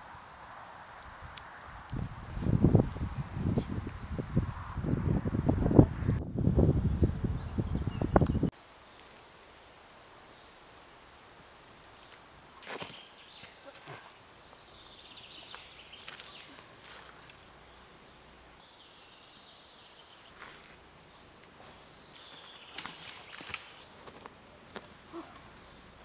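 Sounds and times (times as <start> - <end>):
birds chirping: 6.9 - 9.1, 12.8 - 26.0
twigs snapping: 15.5 - 17.5, 22.7 - 25.7.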